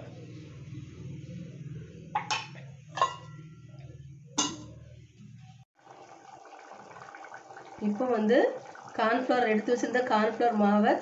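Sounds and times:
steady low hum: 0.0s - 5.6s
metal lid clinking on pot: 2.2s - 3.4s, 4.4s - 4.8s.

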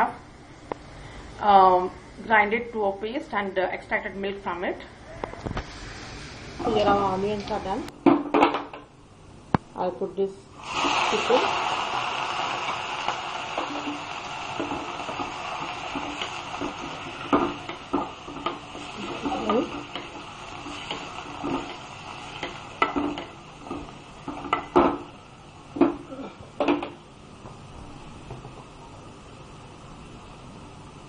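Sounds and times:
utensil knocking and scraping metal pot: 14.6s - 25.1s.

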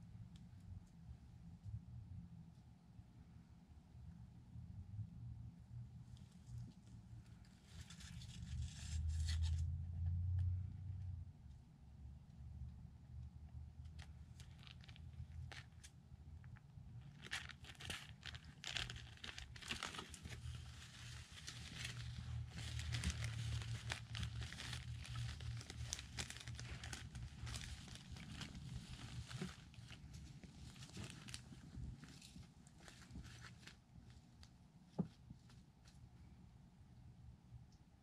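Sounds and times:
low steady hum: 0.0s - 38.0s
dry moss rustling and crackling: 14.0s - 15.9s, 17.0s - 34.6s.

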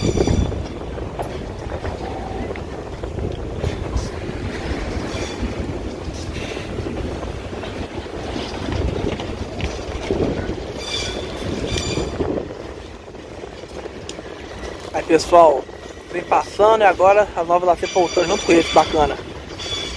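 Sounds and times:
high-pitched metallic squeals: 0.0s - 0.6s, 5.0s - 5.5s, 10.7s - 12.3s, 17.5s - 19.9s
locomotives rumbling: 0.0s - 19.9s.

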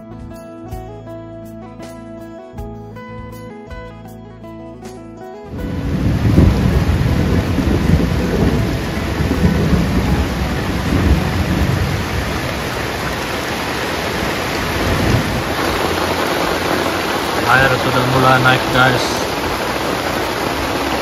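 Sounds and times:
heavy rain drumming on a tarp: 5.5s - 21.0s
runoff water pouring: 5.5s - 21.0s.

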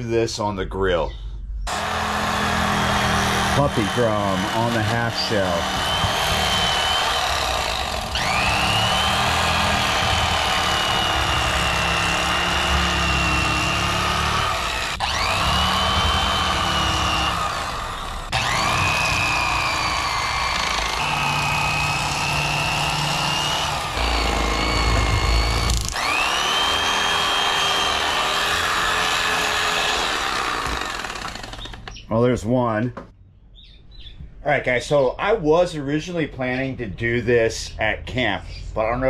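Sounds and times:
electric knife motor whine: 1.7s - 32.0s.

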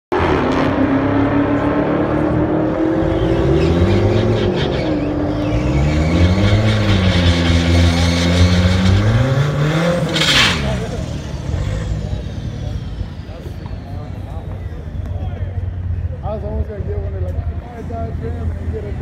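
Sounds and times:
pickup engine revving: 0.1s - 14.4s.

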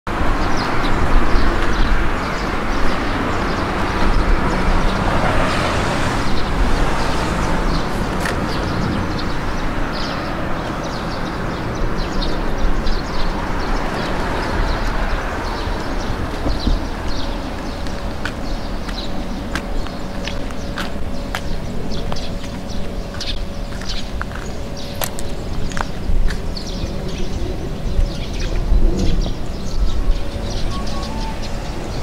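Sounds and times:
road traffic: 0.1s - 32.0s
light footsteps: 16.2s - 26.6s.

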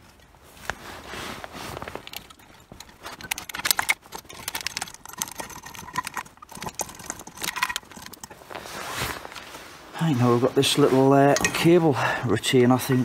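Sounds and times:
small metal parts clicking and clinking: 1.9s - 8.6s.

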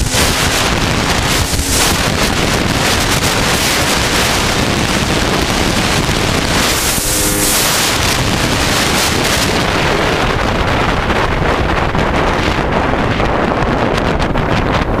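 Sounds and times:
faint motorcycle engine: 0.0s - 11.3s
wind buffeting on microphone: 0.0s - 15.0s.

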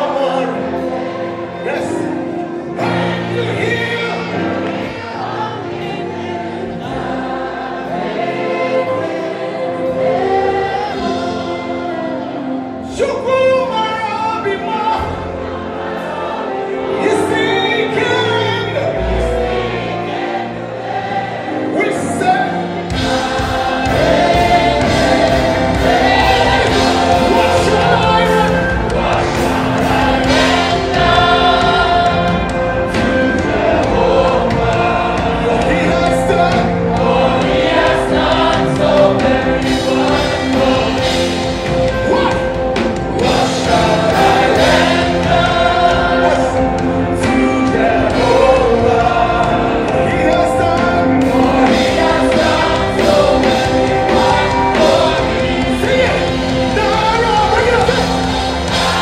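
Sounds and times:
backing choir singing: 0.0s - 59.0s
band playing gospel music: 0.0s - 59.0s
man singing lead: 23.8s - 58.2s.

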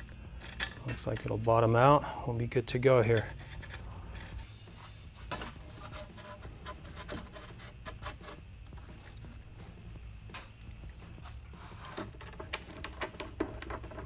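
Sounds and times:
metal parts clicking and scraping: 0.0s - 1.8s, 3.0s - 4.5s, 5.3s - 8.4s, 11.7s - 14.0s
steady low hum: 0.0s - 14.0s.

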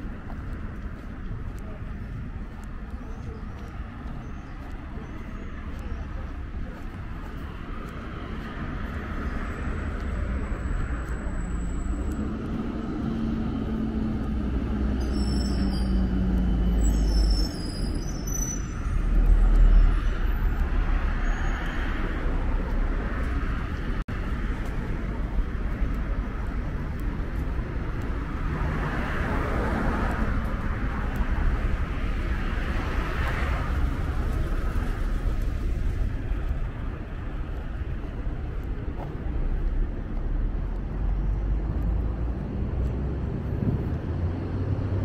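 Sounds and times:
road rumble: 0.0s - 45.0s
high squeaks: 15.0s - 19.0s.

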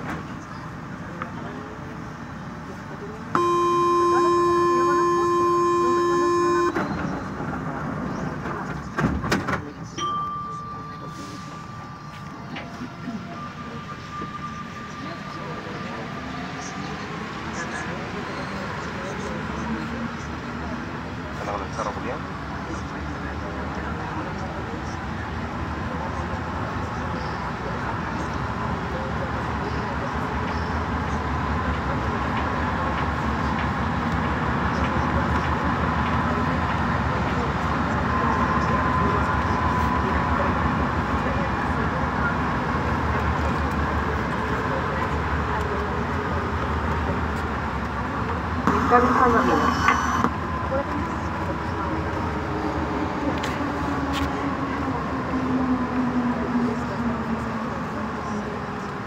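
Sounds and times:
metro train rumble: 0.0s - 59.0s
train high whine: 3.3s - 8.4s, 37.1s - 46.6s, 48.4s - 59.0s
train doors shutting: 5.8s - 9.9s.

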